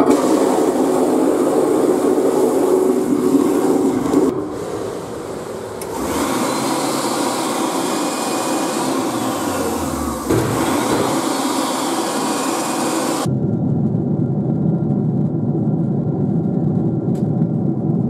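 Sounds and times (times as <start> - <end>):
electric hand dryer blowing: 0.0 - 13.3
airliner cabin drone: 0.0 - 18.0.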